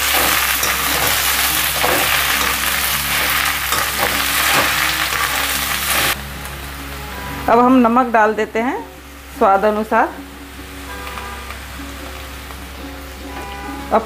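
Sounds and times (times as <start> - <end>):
spatula scraping wok: 0.0 - 6.3
leaves sizzling in hot oil: 0.0 - 14.0.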